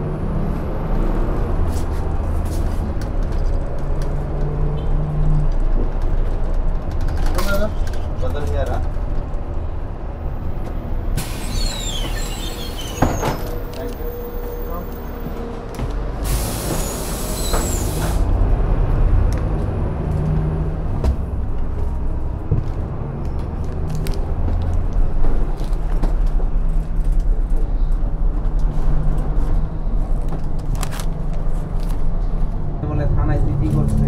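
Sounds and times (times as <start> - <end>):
bus engine low rumble: 0.0 - 34.0
compressed air hiss: 11.2 - 12.4, 16.2 - 18.2.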